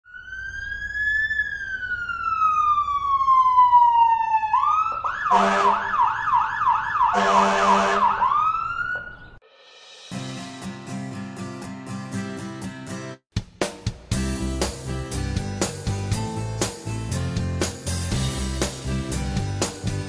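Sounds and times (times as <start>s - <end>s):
emergency vehicle siren: 0.0s - 9.4s
vehicle horn blasts: 5.3s - 5.8s, 7.2s - 8.1s.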